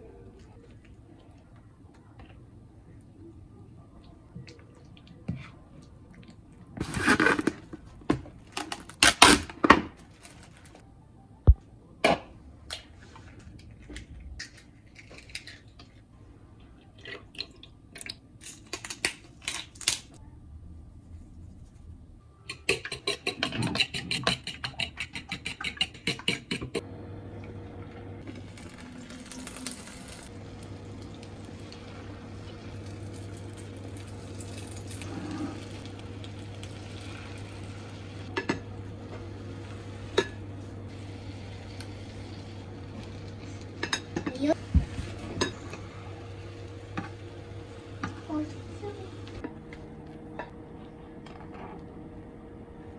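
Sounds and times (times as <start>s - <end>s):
fork beating eggs in a bowl: 22.5s - 26.8s
induction hob humming: 26.7s - 52.9s.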